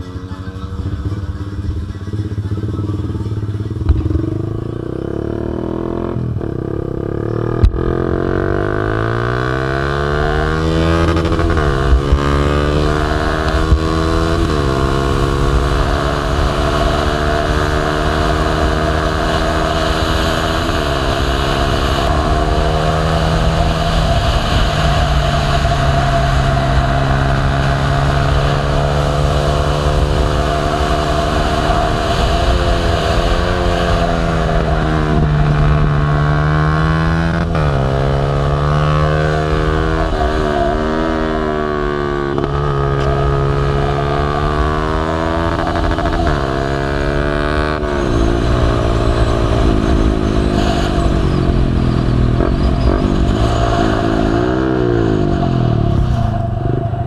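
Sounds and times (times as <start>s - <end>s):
motorcycle engine revving: 0.0s - 57.0s
wind rush: 10.2s - 37.9s, 47.7s - 57.0s.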